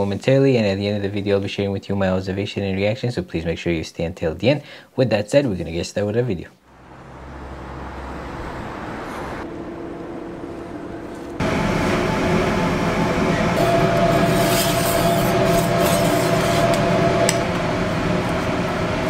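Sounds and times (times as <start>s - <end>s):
quiet street background: 6.6s - 11.4s
gas burners and fans running: 6.7s - 19.0s.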